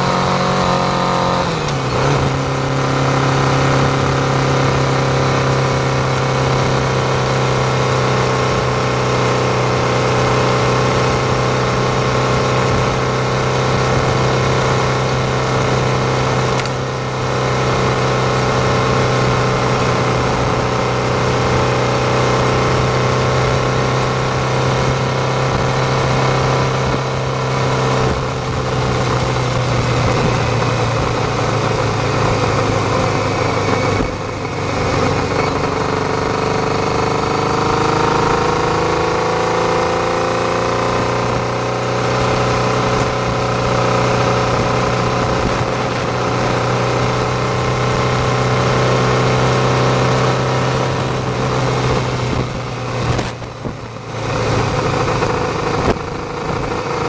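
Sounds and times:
motorcycle engine accelerating: 0:00.0 - 0:57.0
wind and road noise: 0:00.0 - 0:57.0.

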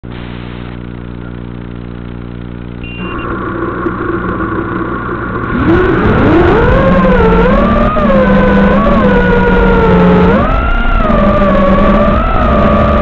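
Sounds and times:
drone motors whining: 0:02.7 - 0:13.0.

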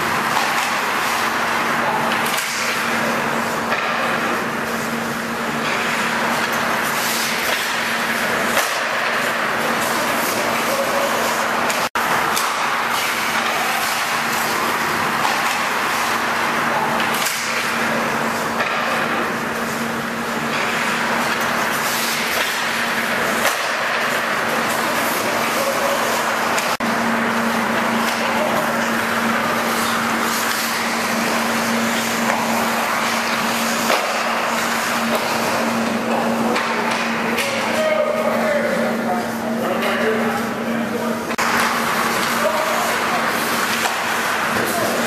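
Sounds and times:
noisy wash: 0:00.0 - 0:45.0.

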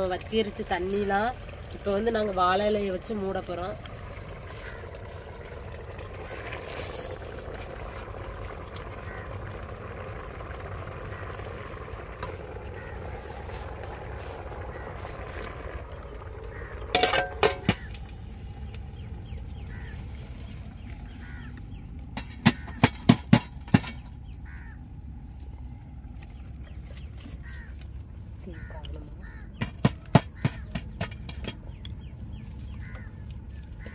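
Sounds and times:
steel lid clanking on pot: 0:16.9 - 0:17.8.

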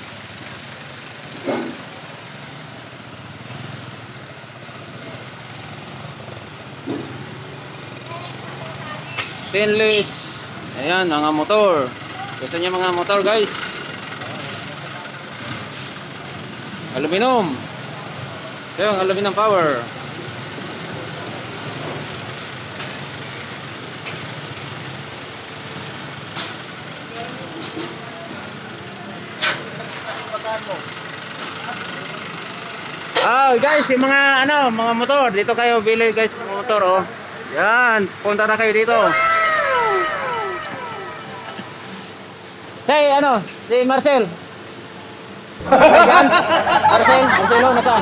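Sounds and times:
small engines in traffic: 0:00.0 - 0:33.4, 0:45.1 - 0:48.0
street noise: 0:38.9 - 0:42.6
busy street traffic: 0:45.6 - 0:48.0.

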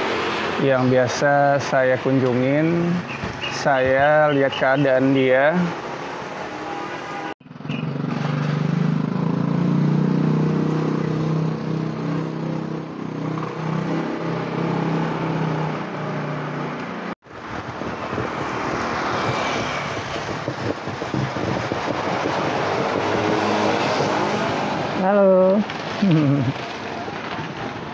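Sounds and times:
motorbikes passing: 0:00.0 - 0:27.9
tyres on a wet road: 0:00.0 - 0:27.9.

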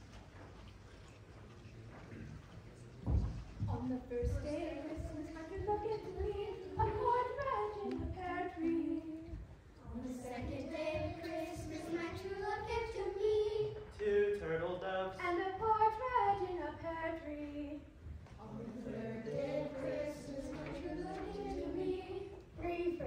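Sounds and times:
children and women singing: 0:03.7 - 0:14.0, 0:15.2 - 0:23.0.

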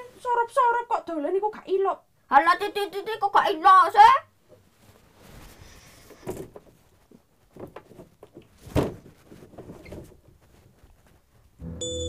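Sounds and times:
faint rustling: 0:04.4 - 0:11.6
thump: 0:08.6 - 0:09.1.

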